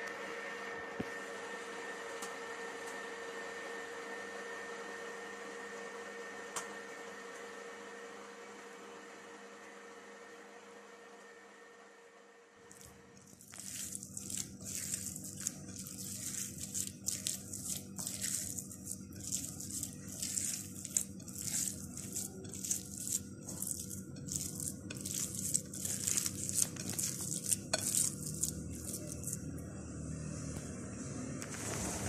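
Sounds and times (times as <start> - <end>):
hands squelching minced meat: 12.7 - 29.6.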